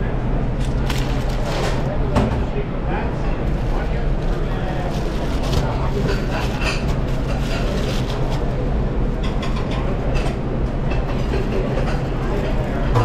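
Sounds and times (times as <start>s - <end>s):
kitchen rumble: 0.1s - 13.0s
plastic crinkling: 0.6s - 1.9s, 3.5s - 8.6s.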